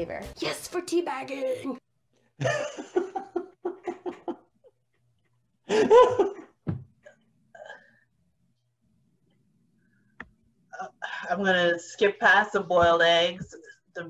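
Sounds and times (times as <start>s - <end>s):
person laughing: 2.4s - 4.5s, 5.7s - 6.5s.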